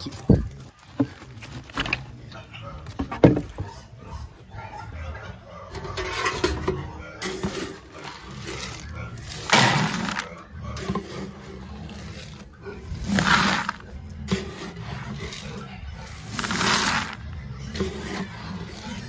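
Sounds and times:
feed pellets pouring into bucket: 13.0s - 13.8s, 16.2s - 17.2s.

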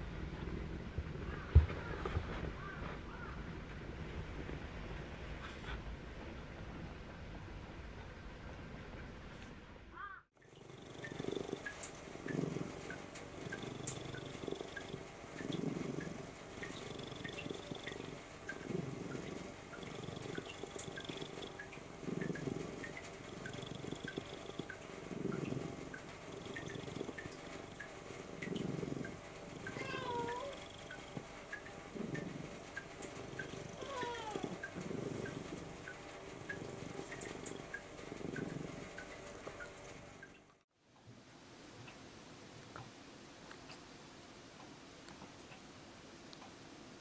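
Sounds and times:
cat purring: 10.4s - 40.3s.

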